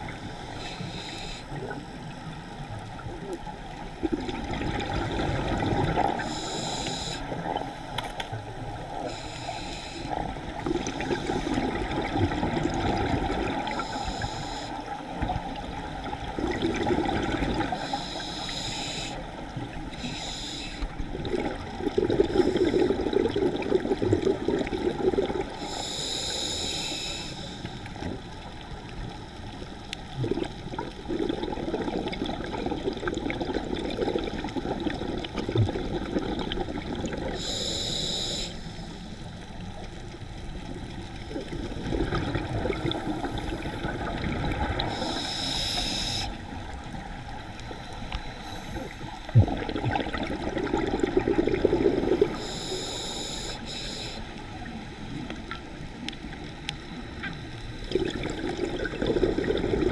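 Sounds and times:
regulator hissing on inhalation: 0.5 - 1.6, 6.2 - 7.4, 9.1 - 10.2, 13.7 - 14.9, 17.8 - 19.3, 20.0 - 20.9, 25.6 - 27.8, 37.3 - 39.2, 44.8 - 46.4, 52.2 - 54.3
rush of bubbles: 4.0 - 6.4, 10.4 - 13.9, 15.8 - 17.8, 21.1 - 25.6, 30.1 - 37.4, 41.2 - 45.3, 48.8 - 52.4, 57.8 - 59.9.

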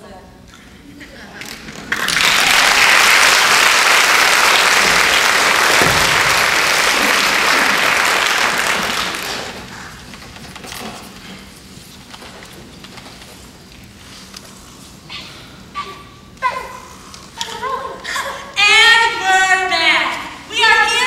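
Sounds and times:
audience applauding: 1.5 - 10.1.

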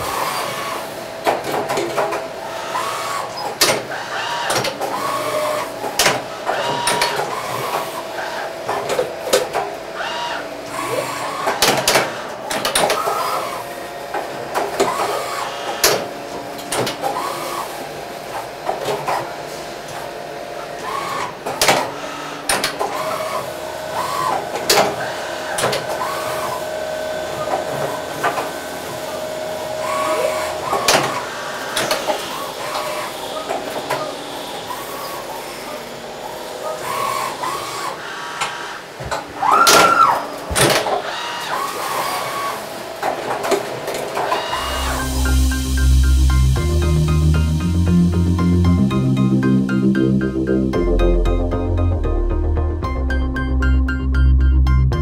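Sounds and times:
machine whines rising and falling: 0.0 - 18.8, 43.9 - 55.0
machine clicks and clunks: 1.2 - 7.9, 10.7 - 13.4, 14.1 - 17.5, 18.6 - 20.1, 20.8 - 26.6, 29.9 - 34.2, 38.4 - 42.3, 43.0 - 45.0
steady machine tone: 44.2 - 55.0.

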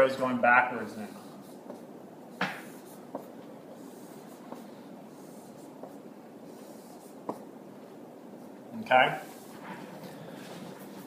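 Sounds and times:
marker strokes on whiteboard: 0.7 - 11.0
marker tapping on whiteboard: 1.6 - 3.5, 7.2 - 7.5.

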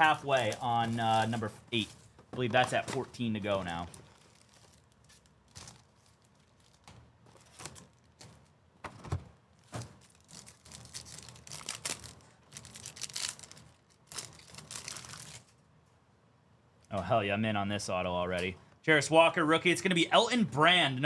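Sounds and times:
foil wrappers crinkling: 0.0 - 8.5, 9.7 - 15.6
wrapper tearing open: 10.0 - 15.6.

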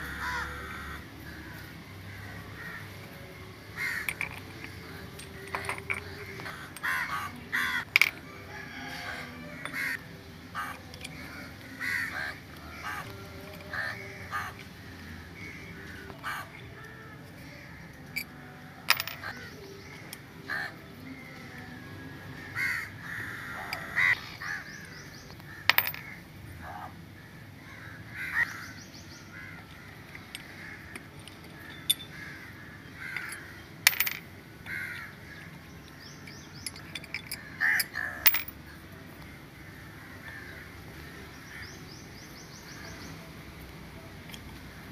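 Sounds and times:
birds calling: 0.0 - 44.9
wrench clicking: 4.0 - 7.2, 36.2 - 38.5.

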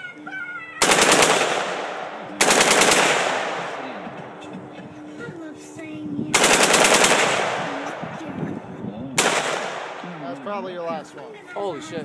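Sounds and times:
automatic gunfire burst: 0.8 - 4.0, 6.3 - 8.1, 9.2 - 10.1
gunfire echo: 0.8 - 4.7, 6.4 - 8.2, 9.2 - 10.3.

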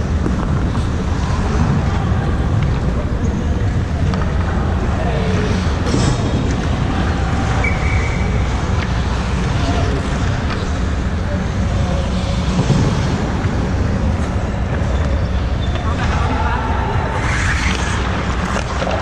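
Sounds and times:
high whistle tone: 7.6 - 8.4.

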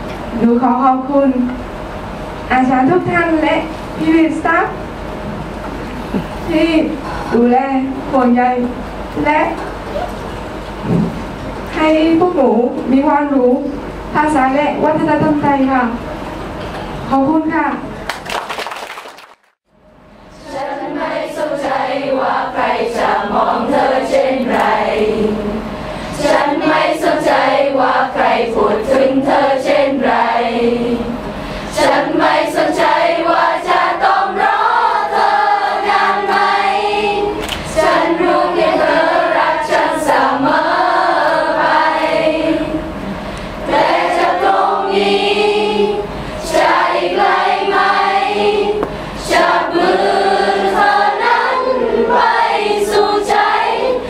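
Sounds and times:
choir of women singing: 20.4 - 43.0, 43.6 - 54.0.

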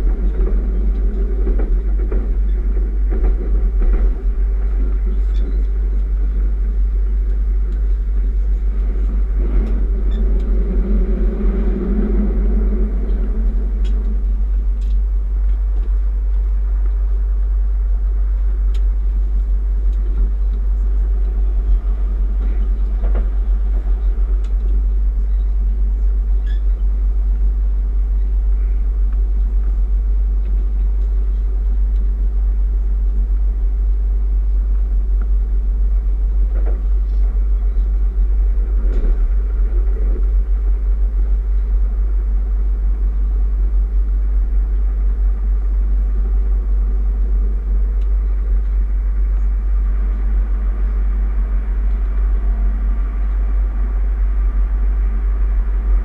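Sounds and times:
train rumbling at speed: 0.0 - 56.0
faint knocks from the track: 22.4 - 24.8.

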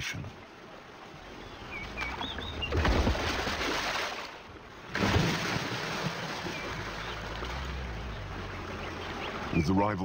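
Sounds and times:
crocodiles splashing in water: 2.0 - 9.5.

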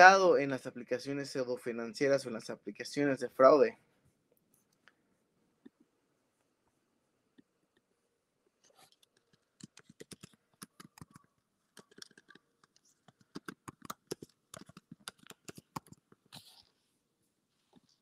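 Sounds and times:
faint typing on keyboard: 8.6 - 16.8.

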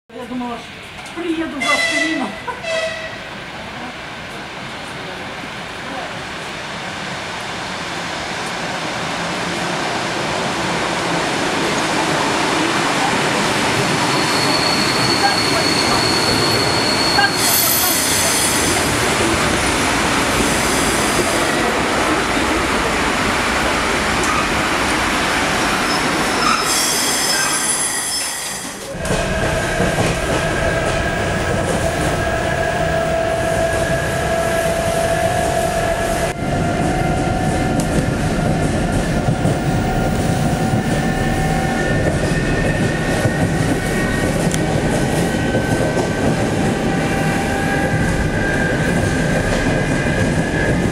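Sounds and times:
train wheel and rail noise: 0.1 - 50.9
wheels rumbling on track: 28.9 - 50.9.

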